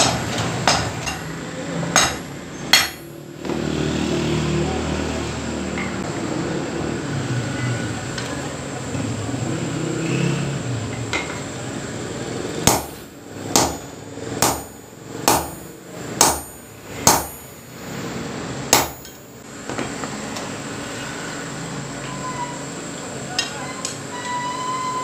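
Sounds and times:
hammer striking hot iron on anvil: 0.0s - 1.3s, 1.9s - 3.2s, 12.6s - 17.6s, 18.7s - 19.2s.

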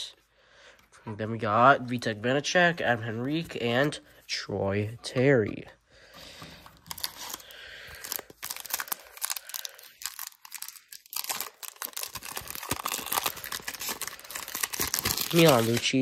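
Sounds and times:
wrapper tearing and crinkling: 6.8s - 16.0s.

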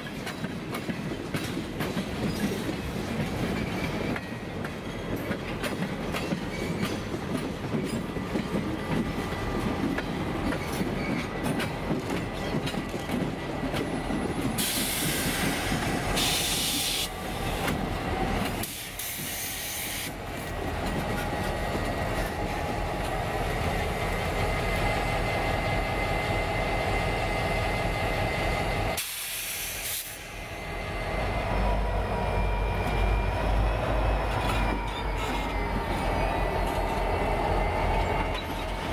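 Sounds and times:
locomotive engines rumbling: 5.4s - 29.0s, 29.6s - 38.9s
loud hissing bursts: 29.0s - 30.4s.

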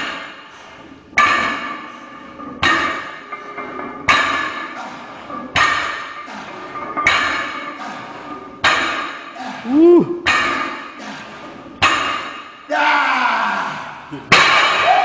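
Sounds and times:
barbell clanking on rubber mat: 0.0s - 9.4s, 10.2s - 12.6s.

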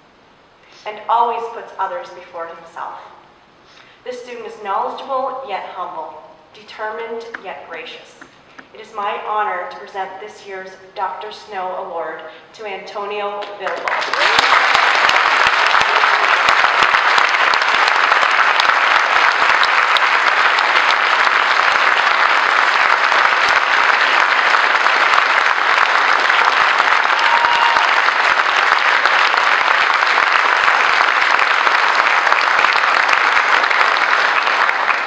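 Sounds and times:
audience applauding: 13.7s - 35.0s.

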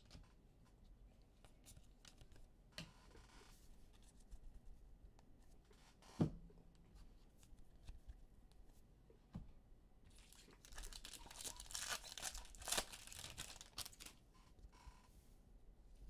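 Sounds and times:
trading cards rustling and clicking: 10.2s - 14.2s.

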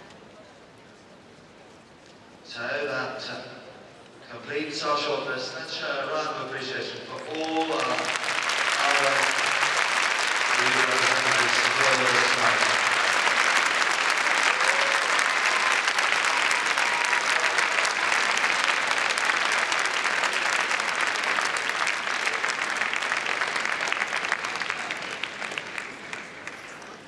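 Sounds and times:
audience applauding: 7.1s - 27.0s.

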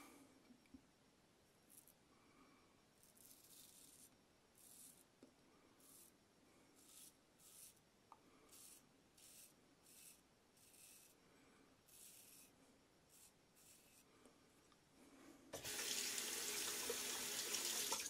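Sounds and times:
razor scraping stubble: 6.8s - 7.8s, 8.5s - 11.2s, 11.9s - 14.1s.

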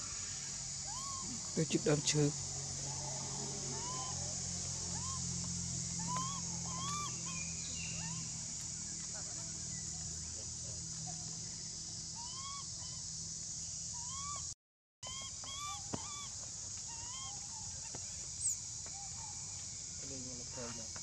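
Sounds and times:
macaques cooing: 0.8s - 5.3s, 5.9s - 8.4s, 12.2s - 13.1s, 15.1s - 17.9s.

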